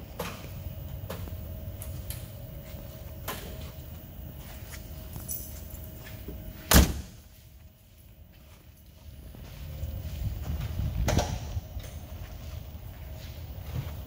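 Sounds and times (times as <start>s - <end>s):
low background hum: 0.0s - 14.0s
car door slamming shut: 6.7s - 7.2s.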